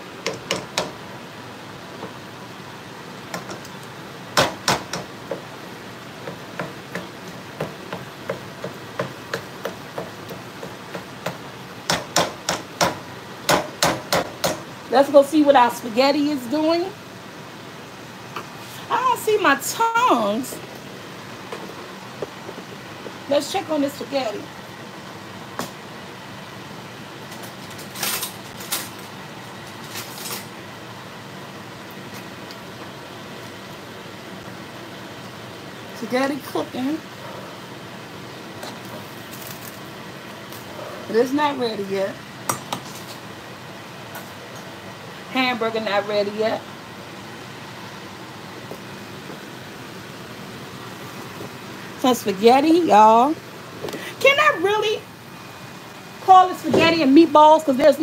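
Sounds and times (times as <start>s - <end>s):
meat being stirred in skillet: 3.2s - 14.7s.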